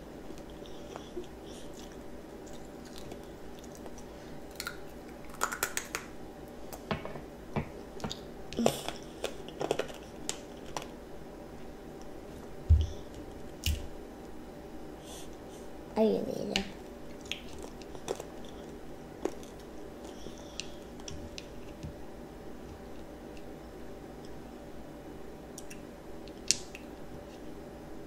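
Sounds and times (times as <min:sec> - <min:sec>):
child chewing crunchy candy: 0:00.3 - 0:06.1, 0:08.0 - 0:11.0, 0:17.1 - 0:21.8.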